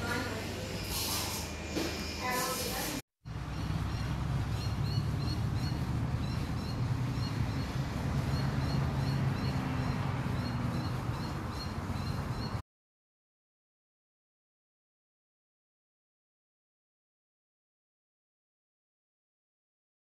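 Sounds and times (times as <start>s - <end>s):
bird chirping: 3.4s - 12.6s.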